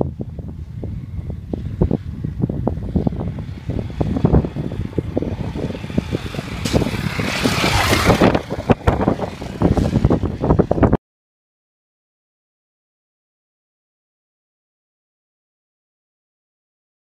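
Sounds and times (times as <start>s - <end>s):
wind buffeting: 0.0s - 11.0s
motorcycle engine passing by: 0.1s - 11.0s.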